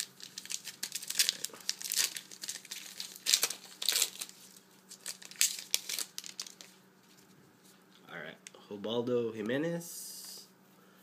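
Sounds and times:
foil wrapper crinkling and tearing: 0.0s - 6.8s.

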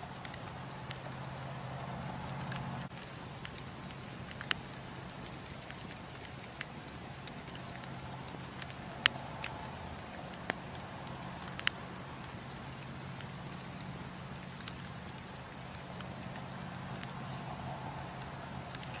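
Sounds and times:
campfire crackling and popping: 0.0s - 19.0s.

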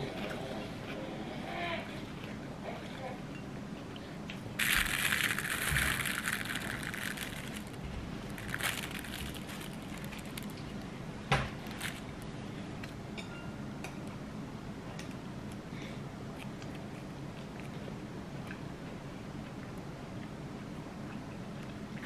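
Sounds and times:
sachet tearing: 4.6s - 10.6s, 11.6s - 12.2s
plastic packaging crinkling: 4.6s - 10.9s, 11.5s - 12.2s.

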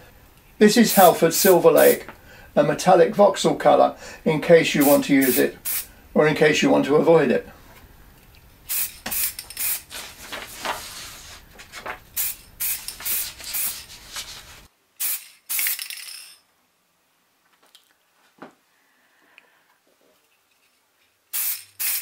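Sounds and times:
aerosol spray can hissing: 0.9s - 2.0s, 4.8s - 5.9s, 8.7s - 9.9s, 12.2s - 14.1s, 15.0s - 15.8s, 21.3s - 22.0s.

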